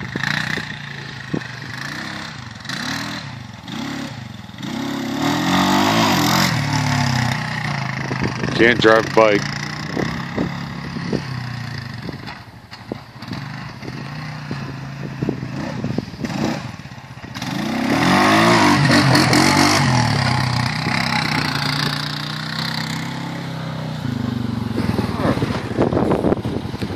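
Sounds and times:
atv engine running: 0.0s - 26.9s.

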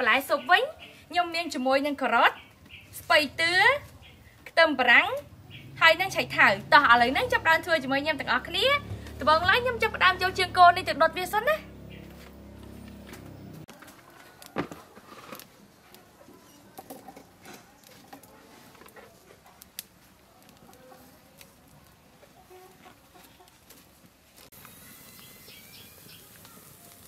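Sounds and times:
wood fire crackling and popping: 2.5s - 22.4s, 23.3s - 27.0s
chickens clucking: 22.0s - 23.9s.

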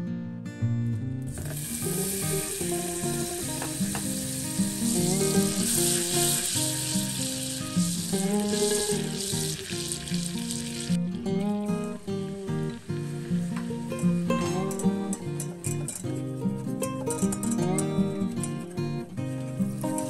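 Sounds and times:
acoustic guitar music: 0.0s - 20.0s
butter sizzling in a saucepan: 1.3s - 18.6s, 19.2s - 20.0s
wire whisk stirring: 1.5s - 11.0s.

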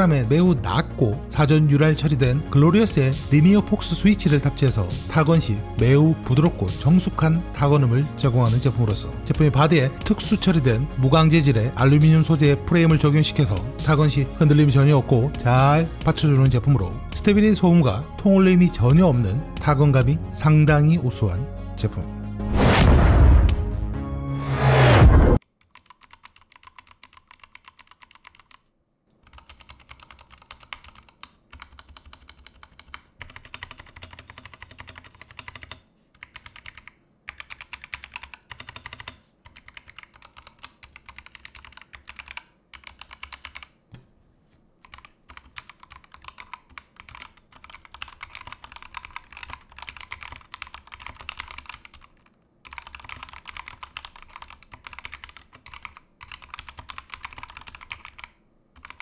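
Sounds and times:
mechanical keyboard typing: 25.5s - 28.6s, 29.2s - 43.8s, 44.8s - 59.0s.

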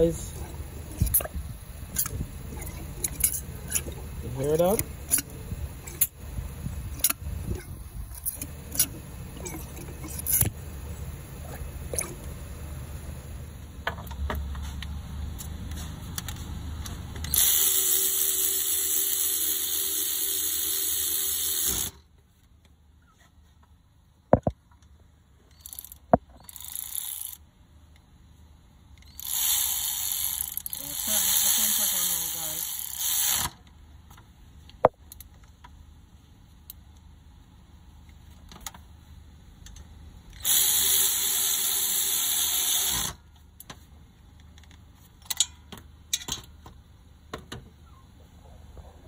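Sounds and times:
metal parts clicking: 7.0s - 10.5s
power tool running: 40.4s - 43.2s
low rumble: 48.2s - 49.0s.

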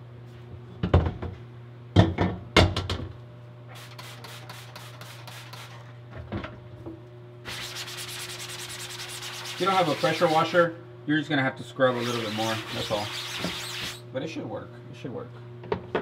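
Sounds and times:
spray bottle squirting: 3.7s - 5.8s, 12.0s - 14.0s.

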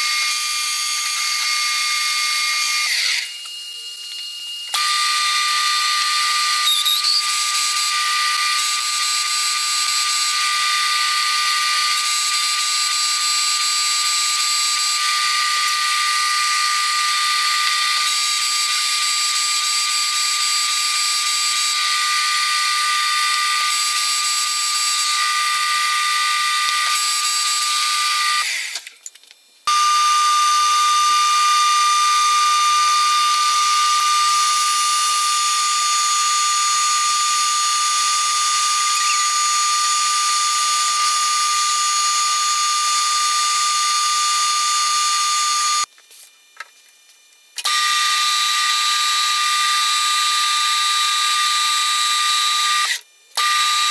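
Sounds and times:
lathe high-pitched whine: 0.0s - 28.8s, 29.7s - 45.9s, 47.6s - 53.9s
lathe cutting noise: 29.7s - 45.9s.

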